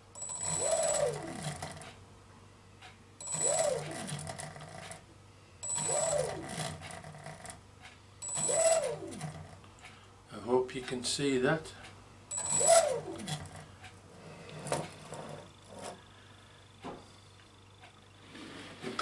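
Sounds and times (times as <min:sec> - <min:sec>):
electric motors whining: 0:00.0 - 0:01.9, 0:03.2 - 0:05.0, 0:05.6 - 0:07.6, 0:08.2 - 0:09.6, 0:12.3 - 0:16.1.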